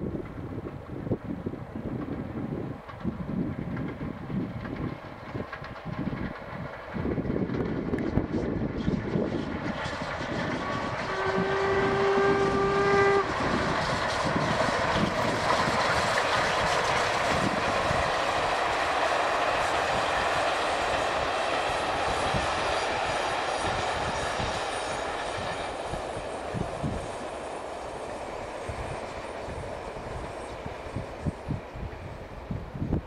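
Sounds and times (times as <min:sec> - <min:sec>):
steam locomotive exhaust beating: 0:00.0 - 0:33.0
train wheels and steam rushing past: 0:00.0 - 0:33.0
steam whistle: 0:09.8 - 0:15.7.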